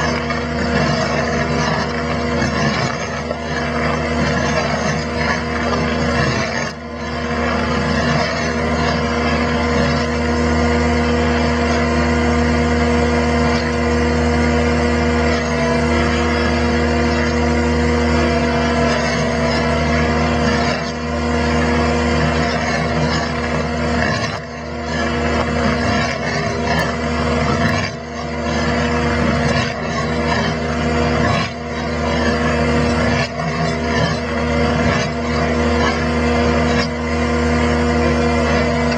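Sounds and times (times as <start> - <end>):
engine running under load: 0.0 - 38.9
hydraulic whine: 0.0 - 38.9.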